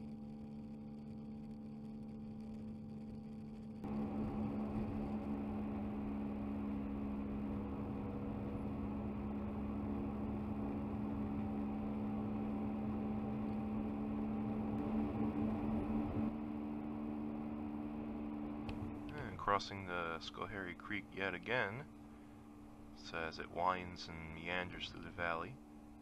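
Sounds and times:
car road and engine noise: 3.8s - 22.0s.

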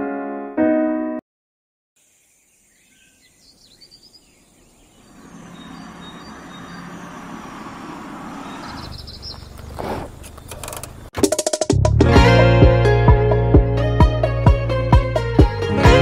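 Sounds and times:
faint high bird chirps: 2.0s - 7.6s, 8.4s - 9.7s.

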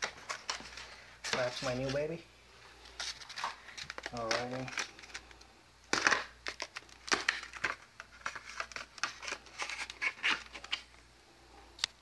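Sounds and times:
plastic packaging crinkling: 2.8s - 11.0s.

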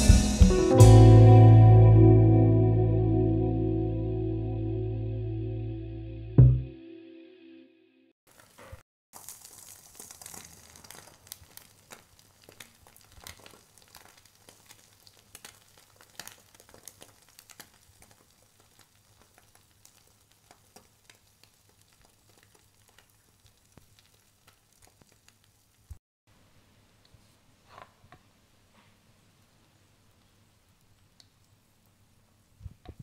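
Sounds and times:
eggs sizzling in a pan: 8.3s - 26.0s.

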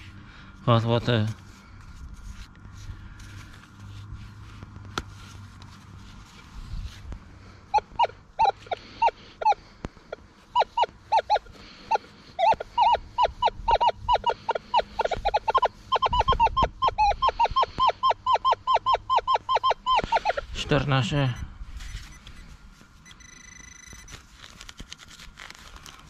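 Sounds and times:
birds honking: 7.6s - 21.4s.

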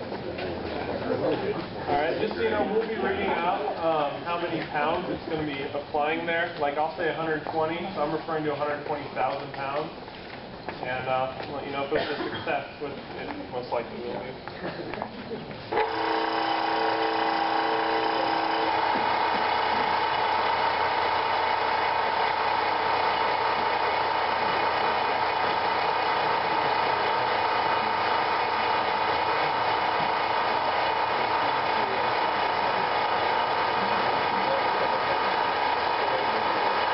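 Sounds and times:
hydraulic power unit whining: 15.7s - 36.9s.

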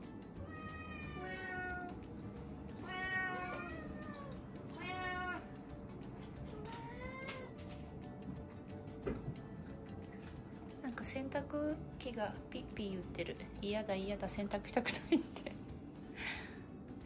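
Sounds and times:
cats meowing: 0.4s - 2.1s, 2.7s - 5.6s, 6.4s - 7.9s.

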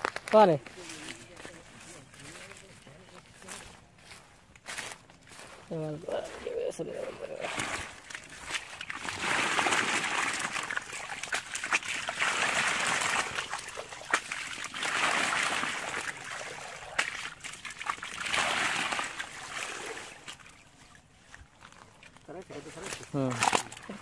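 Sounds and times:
water splashing and trickling: 5.3s - 24.0s.

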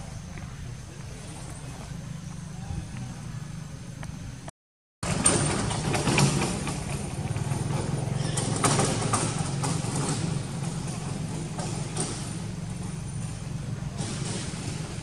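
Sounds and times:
low engine rumble: 0.0s - 15.0s.

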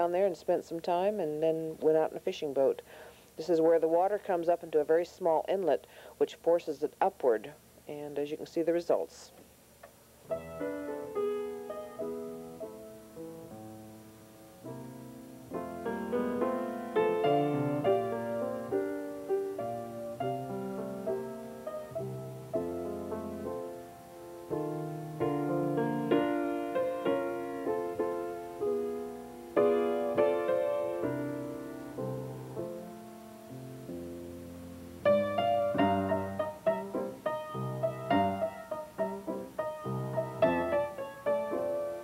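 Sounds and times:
slow piano music: 10.2s - 42.0s.

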